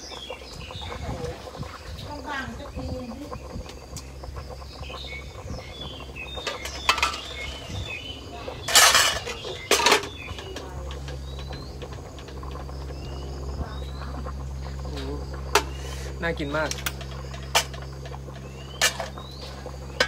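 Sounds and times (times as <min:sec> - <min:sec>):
metal cookware clattering: 0:06.4 - 0:07.6, 0:08.6 - 0:11.7, 0:18.8 - 0:19.2.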